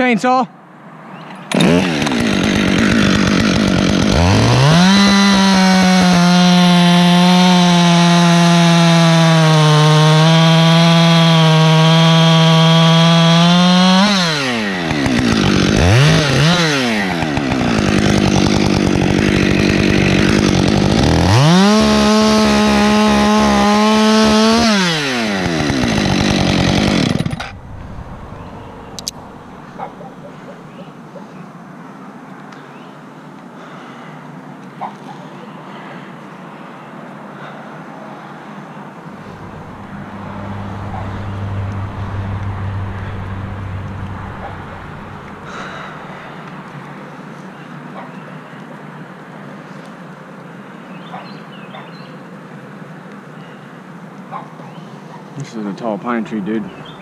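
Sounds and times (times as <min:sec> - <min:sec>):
chainsaw revving and idling: 0:01.5 - 0:30.1, 0:39.2 - 0:46.3.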